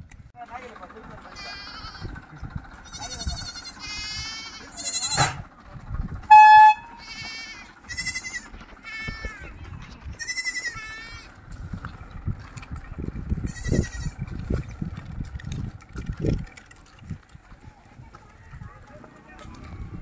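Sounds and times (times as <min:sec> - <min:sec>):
young livestock bleating: 0:01.4 - 0:02.2, 0:02.8 - 0:05.4, 0:06.9 - 0:09.6, 0:10.2 - 0:11.4, 0:13.4 - 0:14.2
loud flat tone: 0:06.2 - 0:07.0.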